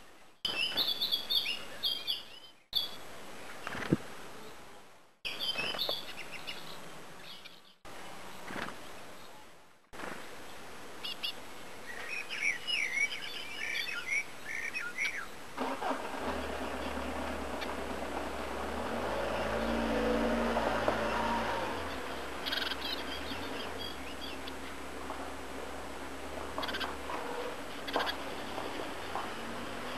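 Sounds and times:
birds chirping: 0.0s - 9.6s, 10.2s - 29.9s
vehicle engine hum: 15.6s - 29.9s.

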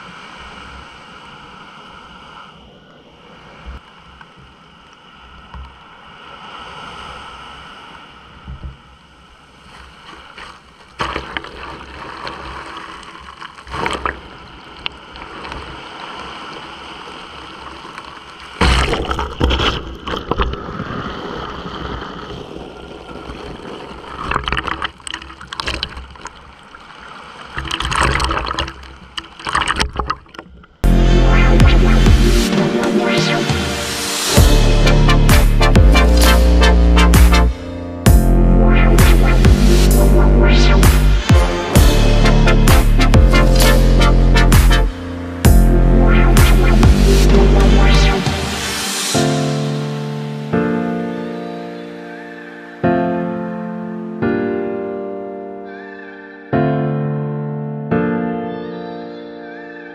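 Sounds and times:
sea water sloshing and splashing: 0.0s - 30.8s.

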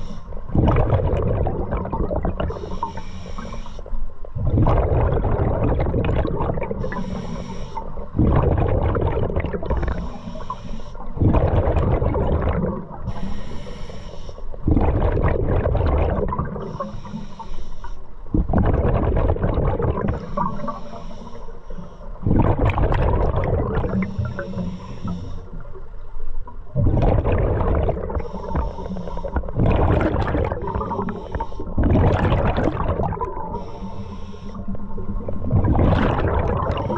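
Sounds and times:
regulator hissing inhale: 0.0s - 0.4s, 2.5s - 3.9s, 6.8s - 8.0s, 9.8s - 11.2s, 13.1s - 14.6s, 16.6s - 18.2s, 20.1s - 22.2s, 23.9s - 25.8s, 28.2s - 29.5s, 30.9s - 31.8s, 33.4s - 34.8s
exhaled bubbles rushing: 0.0s - 2.7s, 4.4s - 7.0s, 7.9s - 10.2s, 11.1s - 13.1s, 14.6s - 16.8s, 18.3s - 20.8s, 22.2s - 24.4s, 25.6s - 33.6s, 34.7s - 36.9s.

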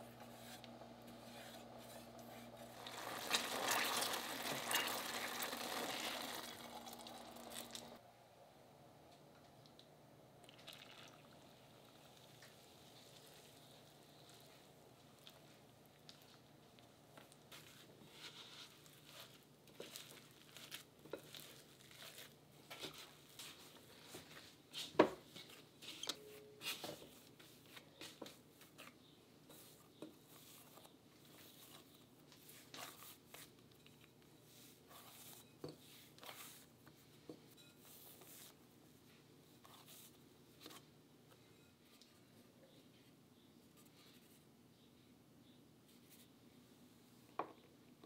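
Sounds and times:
hands kneading dough: 12.8s - 26.0s, 26.6s - 42.2s.

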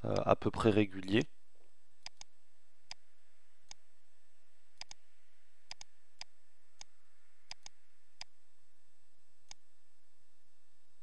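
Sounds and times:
computer mouse clicking: 2.0s - 2.3s, 3.6s - 3.8s, 4.8s - 5.0s, 5.7s - 6.9s, 7.5s - 8.3s, 9.4s - 9.6s.

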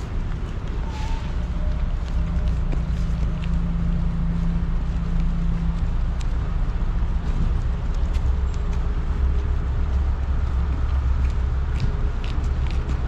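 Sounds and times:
traffic engine rumble: 0.0s - 13.0s.

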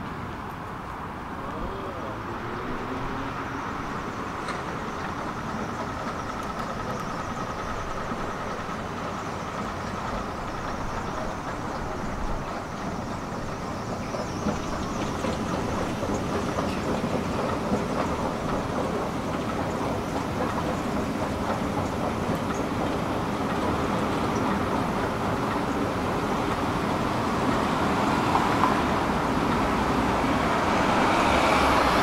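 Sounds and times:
tram rumbling on rails: 0.0s - 32.0s.

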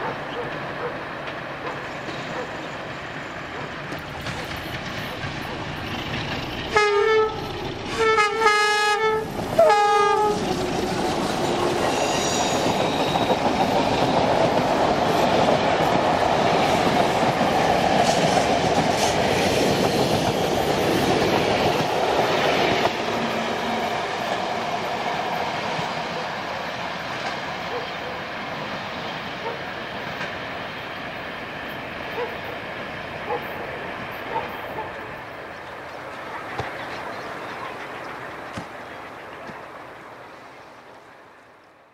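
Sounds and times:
carriages rumbling by: 0.0s - 26.1s, 30.7s - 41.3s
diesel locomotive at full throttle: 0.0s - 40.2s
locomotive horn blasts: 6.7s - 10.4s.

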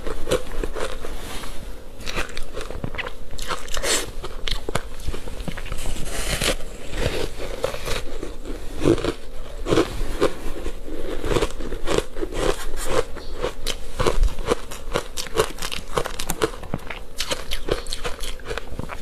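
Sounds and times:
ice crunching while chewing: 2.0s - 19.0s.

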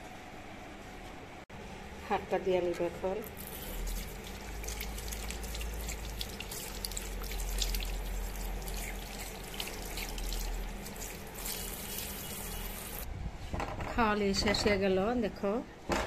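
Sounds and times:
tap water running into basin: 3.3s - 13.0s
hand rinsed under water: 3.4s - 13.0s.

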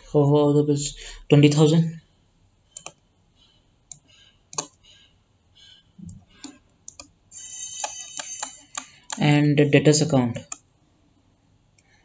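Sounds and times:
input device clicks and taps: 2.7s - 3.0s, 3.9s - 4.8s, 6.0s - 7.2s, 7.8s - 9.3s, 10.4s - 10.7s.

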